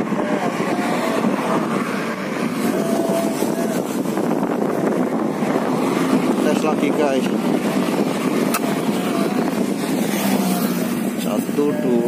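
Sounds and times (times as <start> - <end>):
road traffic hum: 0.0 - 12.0
wind on microphone: 0.0 - 12.0.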